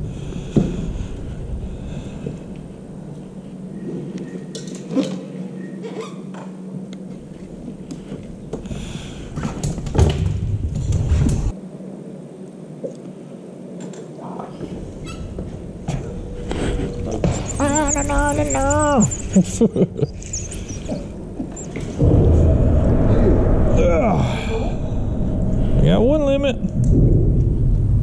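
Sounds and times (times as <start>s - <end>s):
low rumble on microphone: 14.7s - 28.0s.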